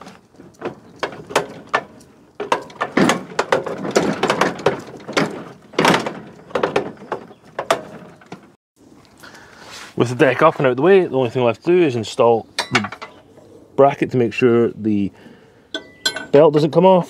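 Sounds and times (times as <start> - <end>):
mower lever clanking and clicking: 0.6 - 8.5.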